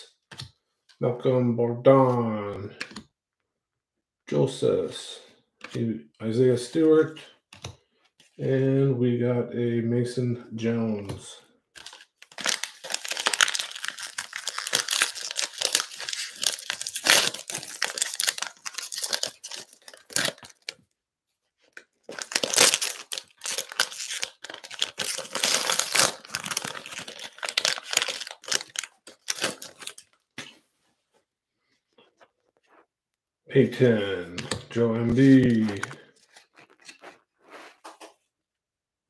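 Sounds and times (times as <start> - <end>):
plastic wrappers crinkling: 11.8 - 20.8, 21.6 - 30.4, 35.1 - 37.4.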